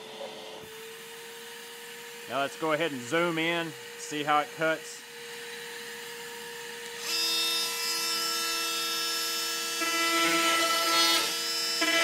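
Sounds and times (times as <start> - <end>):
wet dry vacuum running: 0.0 - 7.8
oscillating multi-tool buzzing: 0.0 - 12.0.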